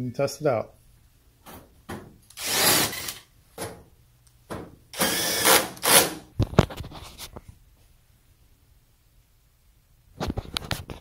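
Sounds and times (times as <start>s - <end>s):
cordless drill driving screws: 2.3s - 3.2s, 4.9s - 6.3s.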